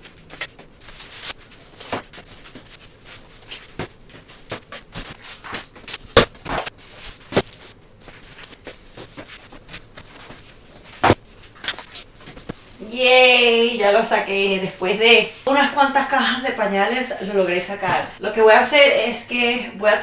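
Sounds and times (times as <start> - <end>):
plastic packs rustling: 0.0 - 12.5.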